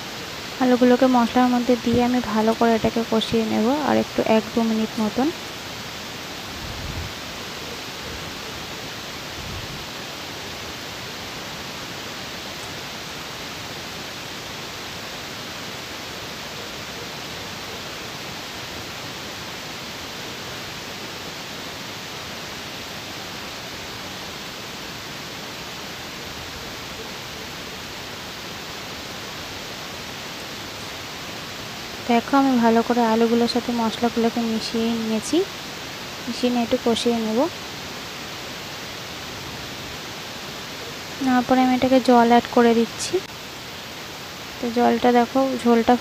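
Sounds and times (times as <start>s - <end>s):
potatoes frying in oil: 0.2s - 5.4s, 31.5s - 35.5s, 36.1s - 37.6s, 41.0s - 43.3s.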